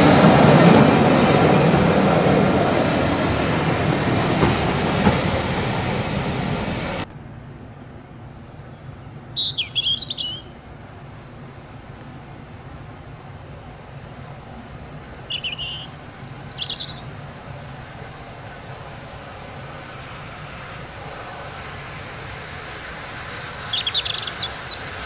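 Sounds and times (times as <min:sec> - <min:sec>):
train wheels rumbling: 0:00.0 - 0:25.0
songbird singing: 0:05.4 - 0:07.0, 0:07.6 - 0:13.0, 0:14.5 - 0:18.1, 0:23.3 - 0:25.0
faint bird chirps: 0:08.7 - 0:10.5.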